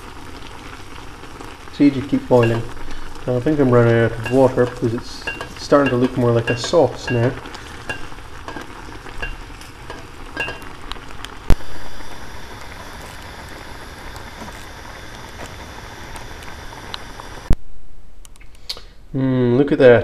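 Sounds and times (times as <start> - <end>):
water boiling and bubbling: 0.0 - 17.6
spoon clicks: 4.2 - 10.7.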